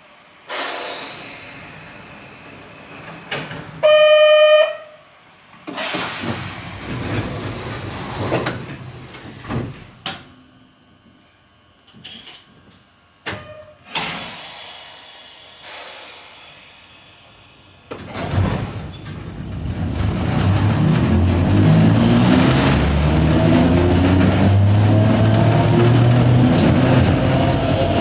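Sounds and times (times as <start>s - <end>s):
train running noise: 0.0s - 4.0s, 13.9s - 28.0s
train horn blast: 3.8s - 5.0s
train rushing past: 19.7s - 28.0s.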